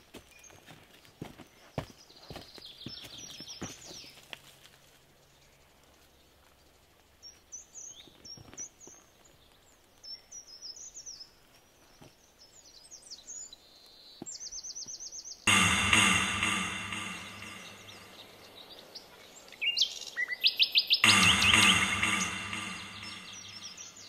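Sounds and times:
forest birds chirping: 0:00.0 - 0:15.4, 0:17.1 - 0:24.0
sudden loud sound: 0:15.5 - 0:18.4, 0:21.0 - 0:24.0.

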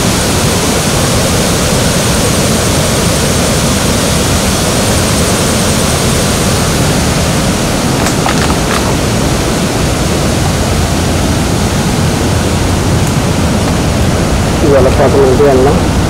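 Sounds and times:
stream rushing: 0:04.1 - 0:14.9.

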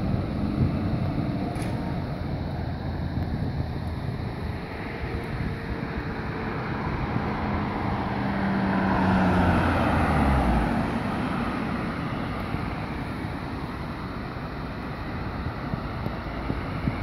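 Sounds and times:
traffic hiss: 0:00.0 - 0:17.0
wind: 0:00.0 - 0:17.0
car driving past: 0:06.3 - 0:12.6.

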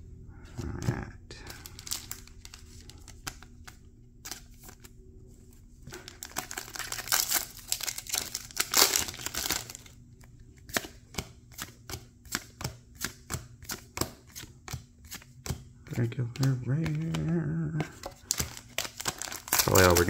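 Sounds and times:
foil wrapper crinkling: 0:01.5 - 0:04.9, 0:05.9 - 0:10.0, 0:18.1 - 0:20.0.

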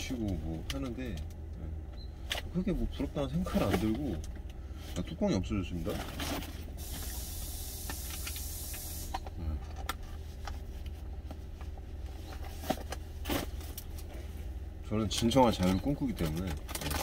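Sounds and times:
steady hiss: 0:06.8 - 0:09.2.

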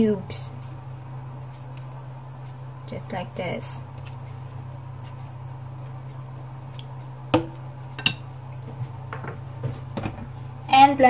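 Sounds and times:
steady low hum: 0:00.0 - 0:11.0
kitchen tongs clinking: 0:08.0 - 0:08.2.

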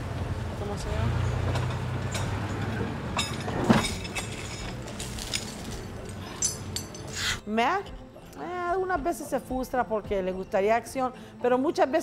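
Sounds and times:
belongings knocking and clinking: 0:01.4 - 0:07.3.

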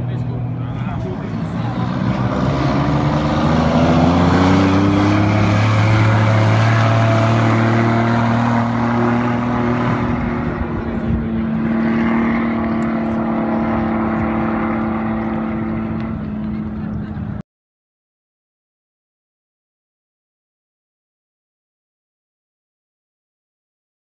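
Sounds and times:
tractor engine at full throttle: 0:00.0 - 0:17.4.

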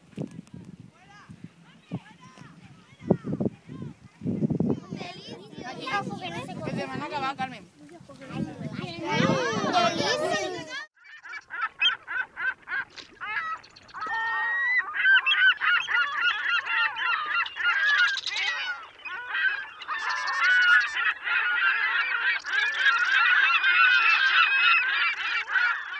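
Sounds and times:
flock of birds calling: 0:01.1 - 0:25.9.

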